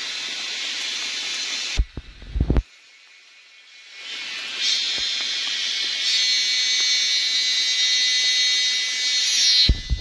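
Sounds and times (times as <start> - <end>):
cicadas buzzing: 0.0 - 10.0.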